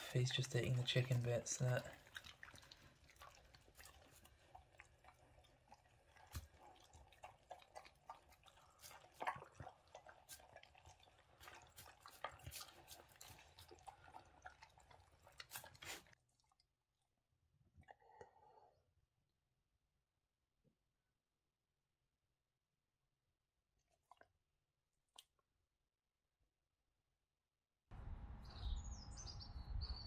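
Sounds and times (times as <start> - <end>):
dogs chewing: 0.0 - 16.2.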